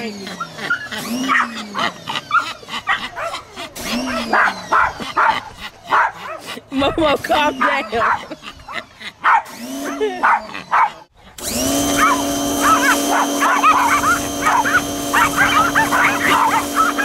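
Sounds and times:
dogs yapping: 0.1s - 6.7s, 7.3s - 17.0s
small dog whining and yipping: 0.4s - 6.5s, 11.8s - 17.0s
pressure washer motor: 3.8s - 4.7s, 9.4s - 10.2s, 11.4s - 17.0s
spray jet hissing: 11.8s - 17.0s.

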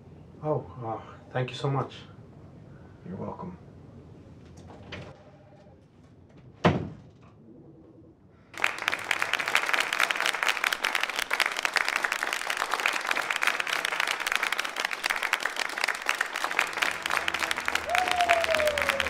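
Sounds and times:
door shutting with a thud: 6.6s - 7.1s
audience applauding: 8.6s - 19.0s.

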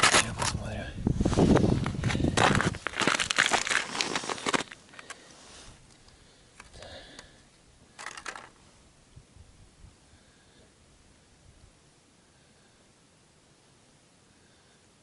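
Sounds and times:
crushed ice and snow crunching: 0.0s - 5.8s
scrape on ice: 1.3s - 4.8s.

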